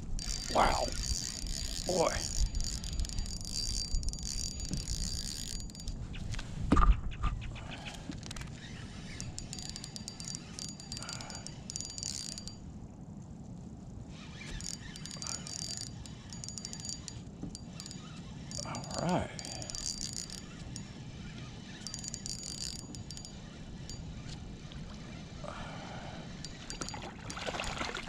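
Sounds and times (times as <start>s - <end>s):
fishing reel whirring: 0.0s - 6.0s, 8.2s - 12.7s, 14.1s - 28.0s.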